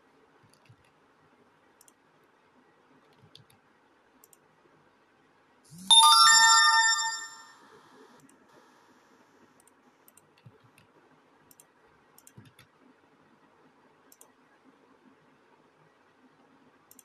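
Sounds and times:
faint clicks: 1.8s - 2.0s, 11.5s - 12.8s, 14.1s - 14.4s
phone notification chime: 5.9s - 7.6s.

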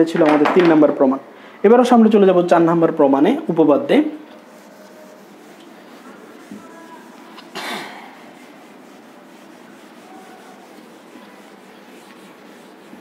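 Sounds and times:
room hiss: 0.0s - 13.0s
hand wiping whiteboard: 2.4s - 13.0s.

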